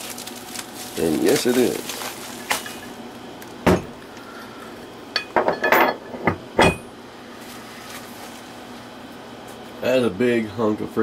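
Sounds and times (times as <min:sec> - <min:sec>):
metal clunks and clinks: 0:05.2 - 0:06.9.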